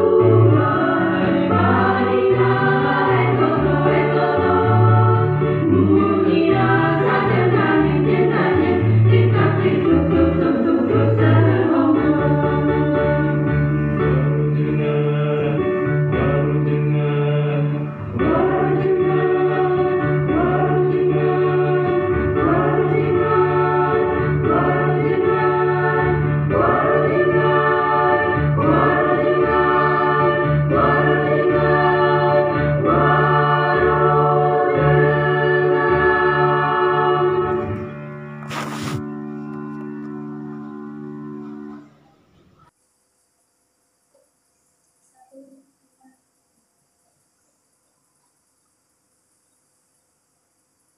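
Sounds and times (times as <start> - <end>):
mixed choir singing in harmony: 0.0 - 37.9.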